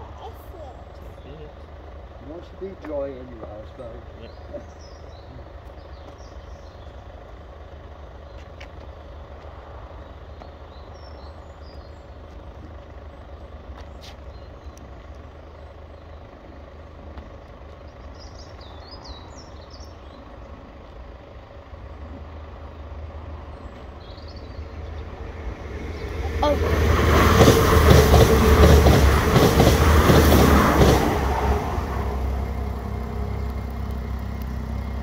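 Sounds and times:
vehicle engine rumbling: 0:00.0 - 0:35.0
bird chirps: 0:03.6 - 0:07.2, 0:09.9 - 0:12.5, 0:17.4 - 0:21.0, 0:22.1 - 0:25.2.

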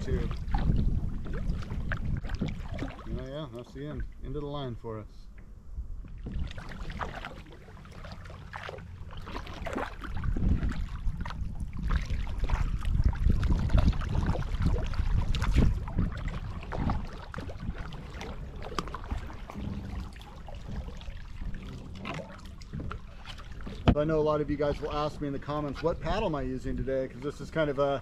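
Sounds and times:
paddle strokes splashing: 0:00.0 - 0:04.4, 0:06.0 - 0:28.0
water moving along plastic hull: 0:00.0 - 0:04.7, 0:05.3 - 0:28.0
low rumble: 0:07.8 - 0:25.6.

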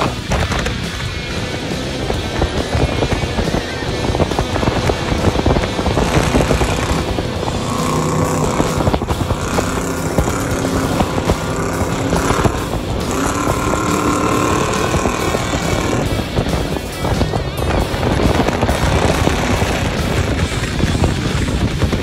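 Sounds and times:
truck engine running hard: 0:00.0 - 0:22.0.

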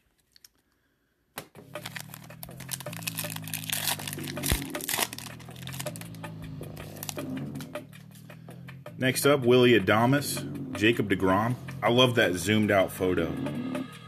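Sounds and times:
wrapper tearing and crinkling: 0:01.7 - 0:06.2, 0:06.8 - 0:07.2.

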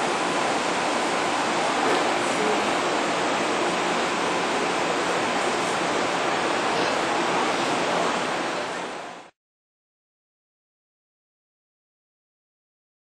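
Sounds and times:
diesel locomotive idling: 0:00.0 - 0:09.1.

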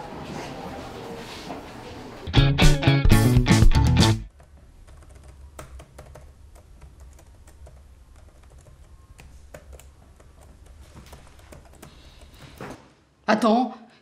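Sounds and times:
typing on laptop keyboard: 0:04.3 - 0:12.6.

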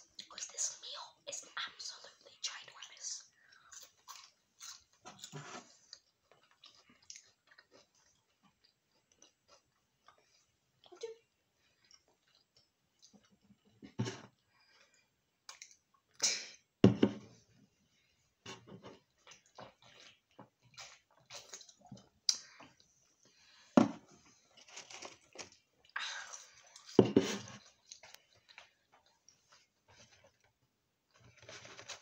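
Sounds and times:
chewing and mouth clicks: 0:02.1 - 0:13.8, 0:14.4 - 0:16.2, 0:19.0 - 0:23.4, 0:24.4 - 0:30.5.

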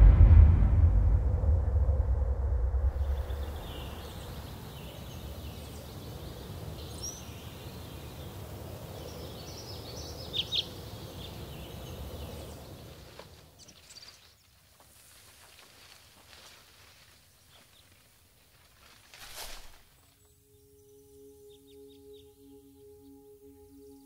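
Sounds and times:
low rumble: 0:00.0 - 0:07.6
birds chirping: 0:03.0 - 0:14.6, 0:19.8 - 0:24.0.

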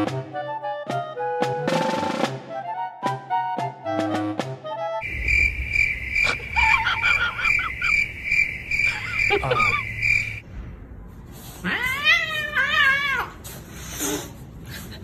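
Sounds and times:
cat meowing: 0:11.6 - 0:13.4.

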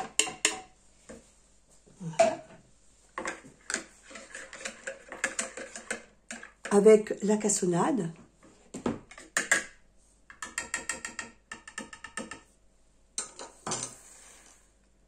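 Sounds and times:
sugar scraped with spatula: 0:03.8 - 0:06.5.

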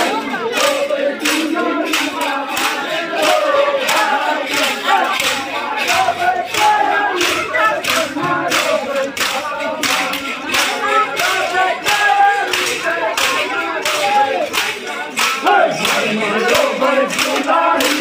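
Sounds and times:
men chanting together: 0:00.0 - 0:18.0
sharp rhythmic clacks: 0:00.0 - 0:18.0.

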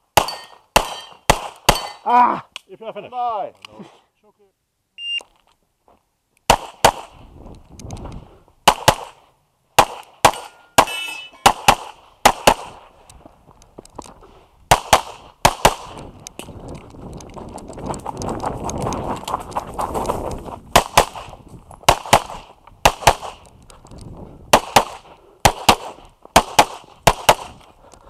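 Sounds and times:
pistol shots: 0:00.2 - 0:02.0, 0:06.5 - 0:07.2, 0:08.6 - 0:09.2, 0:09.8 - 0:12.8, 0:14.7 - 0:16.0, 0:20.7 - 0:21.3, 0:21.9 - 0:23.4, 0:24.5 - 0:27.6.

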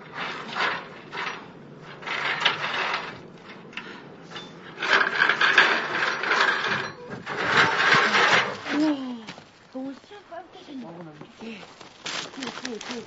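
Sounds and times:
wooden ladder scraping and knocking: 0:00.0 - 0:09.0.

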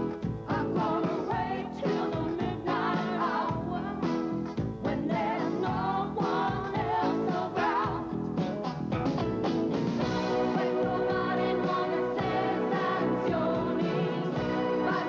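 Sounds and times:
pop song with sung vocal: 0:00.0 - 0:08.4, 0:10.1 - 0:15.0.

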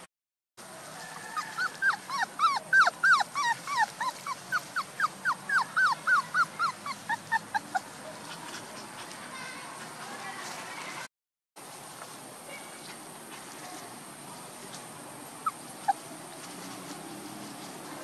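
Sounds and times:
puppies whimpering: 0:01.2 - 0:09.0, 0:15.4 - 0:16.1.

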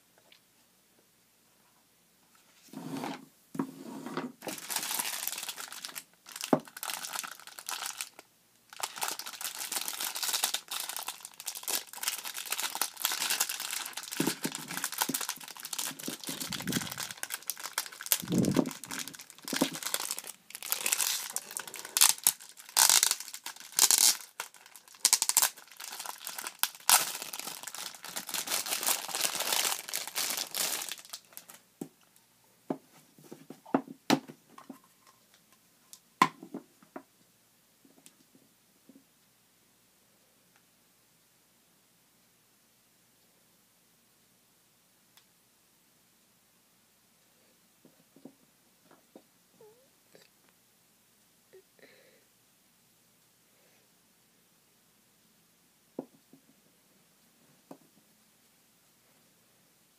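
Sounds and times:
plastic wrapping crinkling and tearing: 0:04.4 - 0:31.6.

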